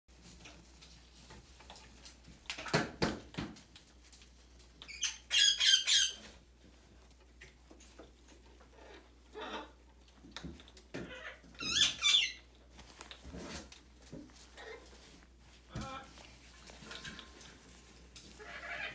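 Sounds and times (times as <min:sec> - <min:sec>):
macaw squeaking: 0:04.9 - 0:06.2, 0:11.6 - 0:12.4.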